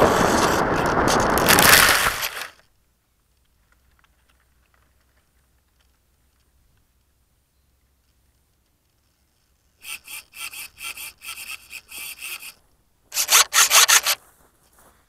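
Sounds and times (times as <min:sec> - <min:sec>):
footsteps through tall grass: 0:14.1 - 0:15.0.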